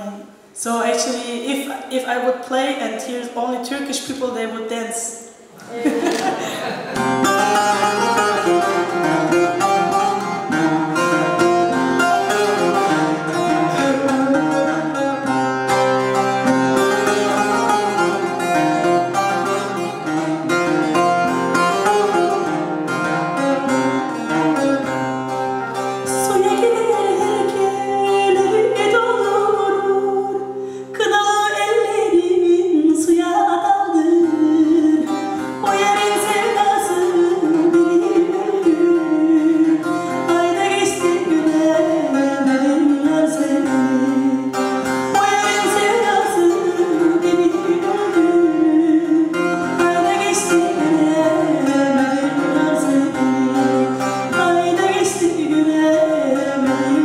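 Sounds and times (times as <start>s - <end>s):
plucked lute melody: 5.8s - 57.0s
woman singing: 26.1s - 57.0s.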